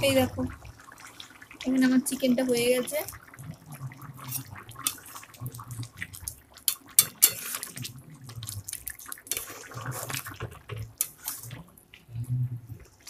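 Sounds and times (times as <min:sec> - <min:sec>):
thick gravy sloshing: 0:00.0 - 0:13.0
spoon clinking against pot: 0:06.7 - 0:07.6.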